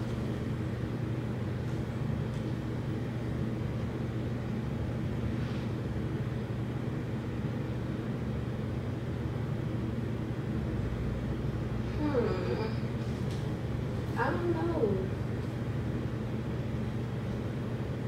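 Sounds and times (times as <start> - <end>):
low motor hum: 0.0 - 7.6.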